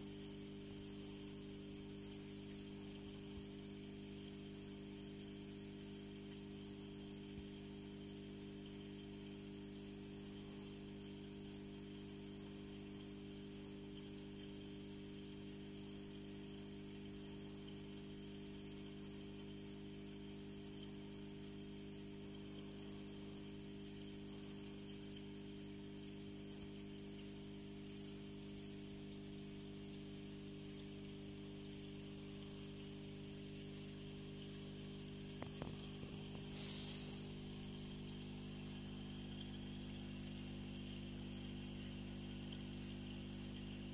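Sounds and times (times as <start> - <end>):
water and bubbles fizzing: 0.0 - 4.8, 28.3 - 43.9
aquarium pump hum: 0.0 - 43.9.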